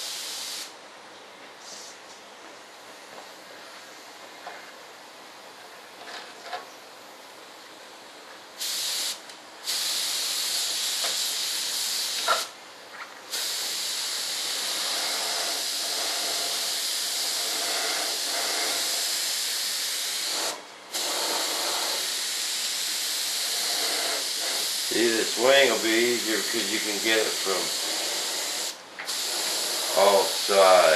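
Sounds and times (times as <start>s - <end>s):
paint spray gun hissing: 0.0s - 0.7s, 8.6s - 12.5s, 13.3s - 30.9s.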